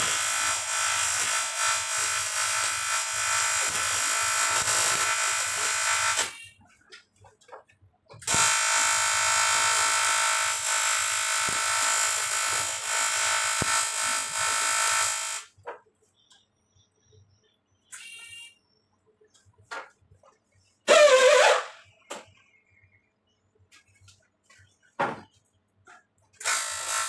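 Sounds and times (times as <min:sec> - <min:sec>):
welding arc buzzing: 0:00.0 - 0:06.5, 0:08.2 - 0:15.6, 0:26.4 - 0:27.0.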